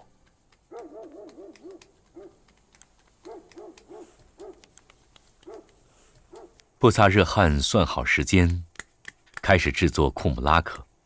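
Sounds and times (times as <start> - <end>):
faint clicks: 0.0 - 6.7
bird hooting: 0.7 - 2.4.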